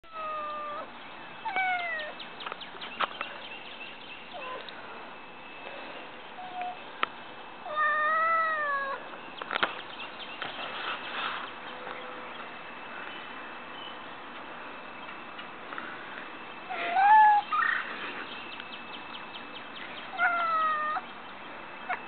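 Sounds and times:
cat meowing: 0.1s - 0.9s, 1.5s - 2.2s, 7.7s - 9.0s, 16.7s - 17.6s, 20.2s - 21.0s.

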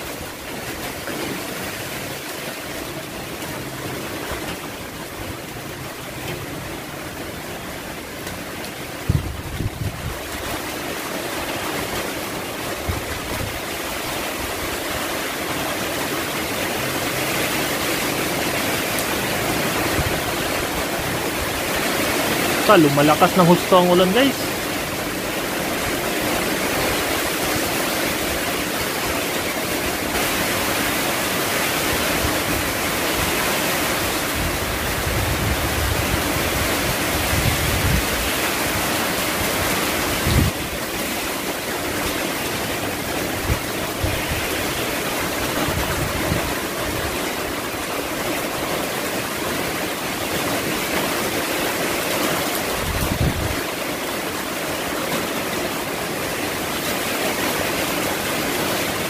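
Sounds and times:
heavy rain pouring: 0.0s - 59.0s
wind buffeting microphone: 9.0s - 10.4s, 34.3s - 38.3s, 40.2s - 40.8s, 45.5s - 47.0s, 52.8s - 53.6s.

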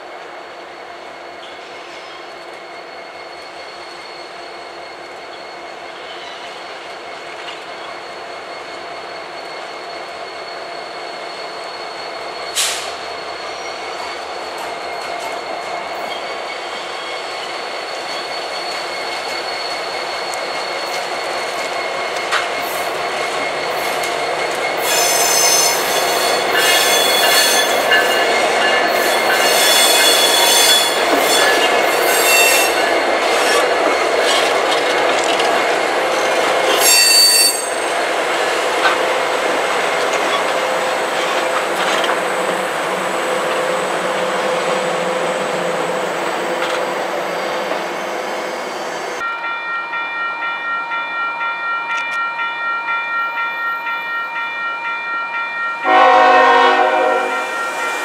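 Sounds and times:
train wheels rolling on rails: 0.0s - 58.0s
high-pitched wheel squeal: 1.4s - 38.1s.

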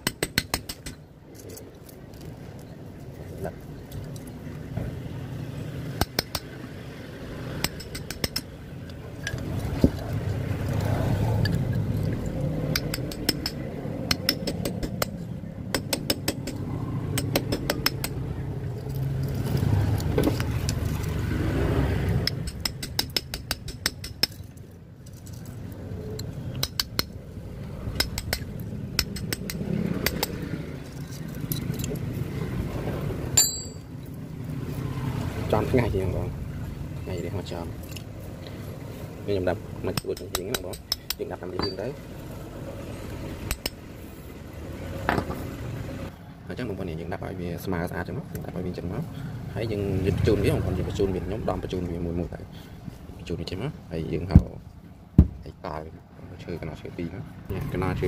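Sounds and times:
metal tool clinking and scraping: 30.1s - 32.1s, 33.4s - 33.9s, 40.0s - 42.0s.

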